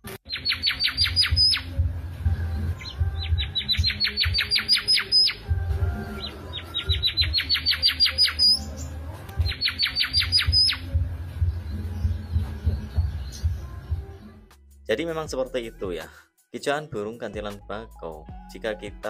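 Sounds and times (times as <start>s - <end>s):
bird whistling song: 0.3s - 1.8s, 2.4s - 14.0s.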